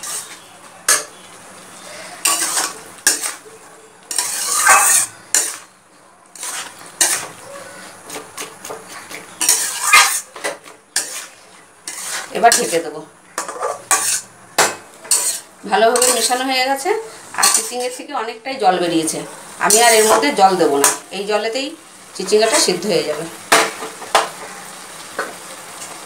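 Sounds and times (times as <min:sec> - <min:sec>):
metal spatula scraping a metal pan: 0:00.0 - 0:01.2, 0:02.2 - 0:03.4, 0:04.1 - 0:05.7, 0:06.3 - 0:16.6, 0:17.4 - 0:18.1, 0:19.6 - 0:21.0.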